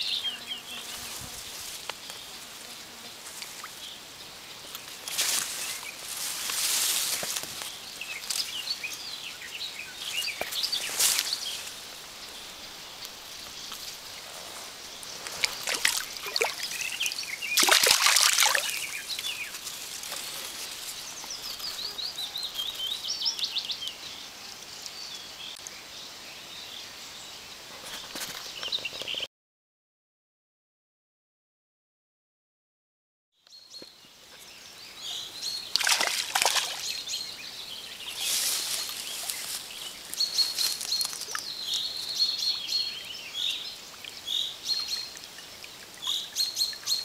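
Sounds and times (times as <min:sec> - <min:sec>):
songbirds chirping: 0:00.0 - 0:29.3, 0:33.4 - 0:47.0
rustling and splashing: 0:03.2 - 0:03.9, 0:04.7 - 0:09.1, 0:10.0 - 0:21.9, 0:35.7 - 0:37.2, 0:38.0 - 0:42.1
stream rushing: 0:09.2 - 0:19.7, 0:35.7 - 0:37.1.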